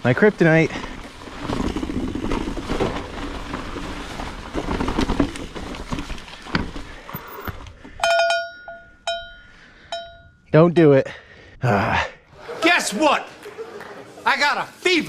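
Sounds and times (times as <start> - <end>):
bike tyres crunching on dirt: 0.0 - 7.8
bike rattling and clicking: 0.1 - 10.2
cowbell clanking: 8.0 - 10.4.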